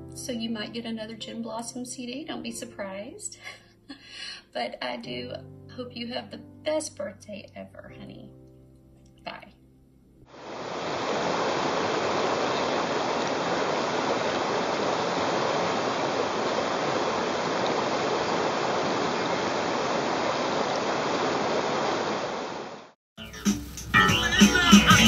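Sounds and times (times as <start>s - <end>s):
river flowing over rocks: 10.4s - 22.8s.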